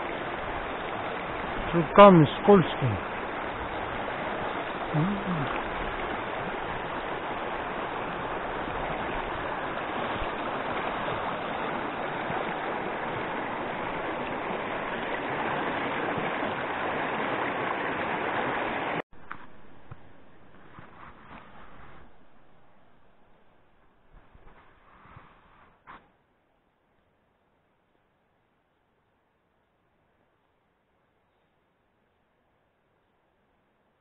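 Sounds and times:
stream rushing over rocks: 0.0 - 22.8.

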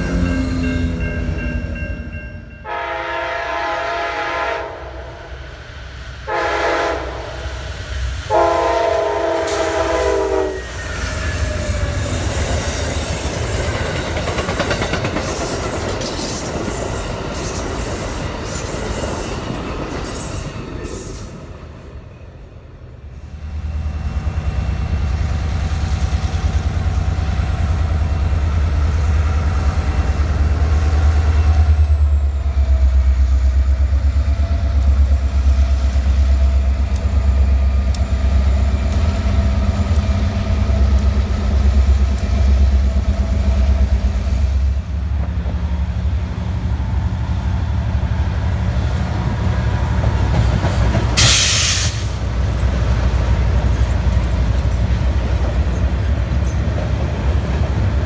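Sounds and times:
diesel locomotive departing: 0.0 - 58.0
diesel locomotives rumbling past: 0.0 - 58.0
rail and wheel noise: 0.0 - 58.0
burst of hiss: 51.2 - 52.2.

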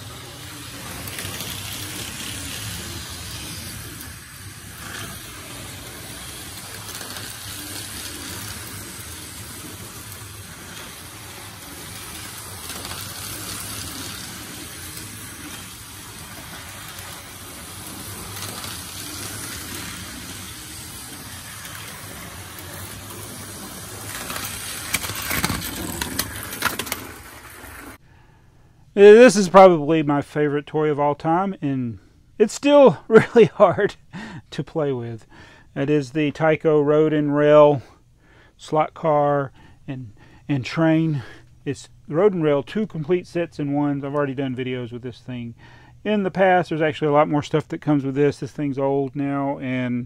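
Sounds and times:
whir of small electric motors: 0.0 - 28.0
toy car crashing into train: 15.4 - 27.8.

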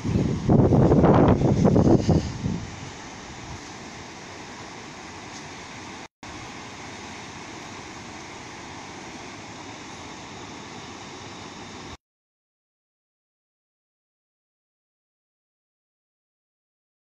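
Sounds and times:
river water rushing over ledge: 0.0 - 12.0.

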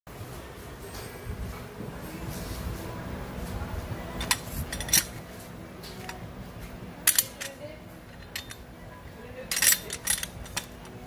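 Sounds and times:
metal caster clicking: 4.2 - 5.2, 7.0 - 8.7, 9.4 - 11.0.

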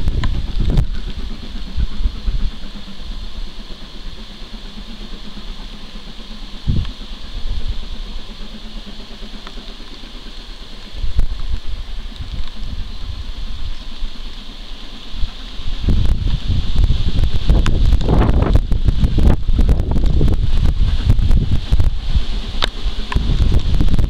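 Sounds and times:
rain hissing: 0.0 - 24.0
wind buffeting microphone: 0.0 - 24.0.

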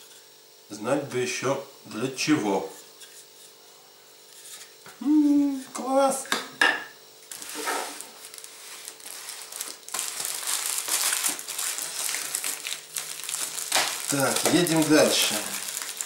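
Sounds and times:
plastic cling film crinkling: 7.3 - 16.0.

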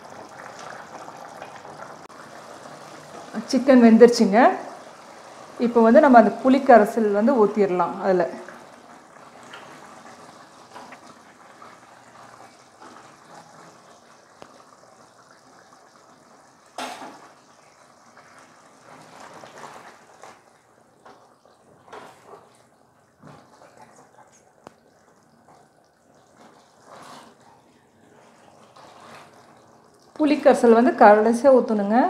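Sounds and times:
liquid sloshing: 18.0 - 30.2
spatula scraping pot: 26.3 - 29.7.

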